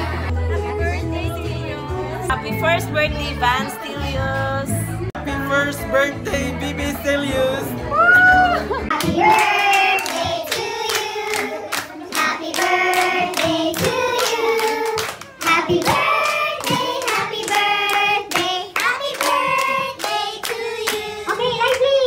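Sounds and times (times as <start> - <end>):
group of people singing: 8.6 - 21.6.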